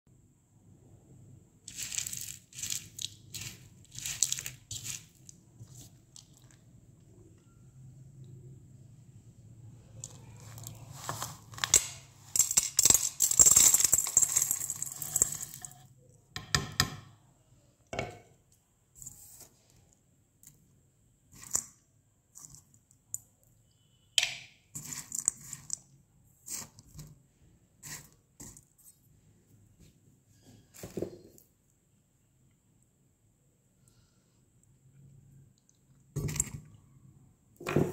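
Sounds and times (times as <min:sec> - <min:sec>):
dry clay chunks crunching: 0:01.7 - 0:06.6.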